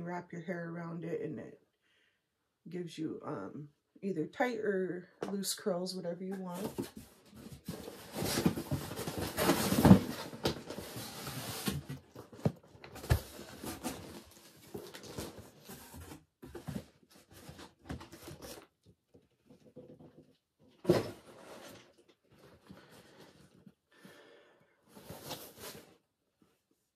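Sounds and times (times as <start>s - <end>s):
cardboard packaging rustling: 6.4s - 23.7s, 24.9s - 26.0s.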